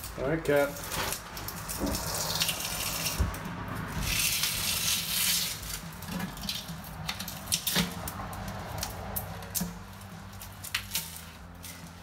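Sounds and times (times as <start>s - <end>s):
plastic crackling: 0.0s - 12.0s.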